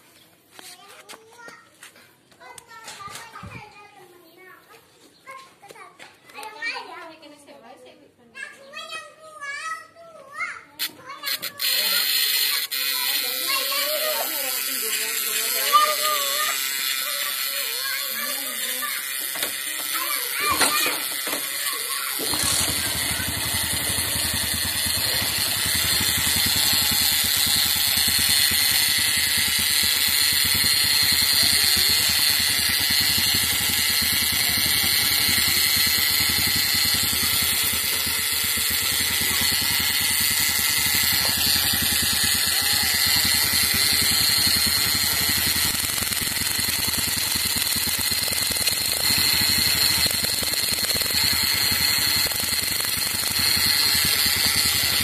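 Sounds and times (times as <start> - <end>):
scooter engine starting and idling: 11.2 - 55.0.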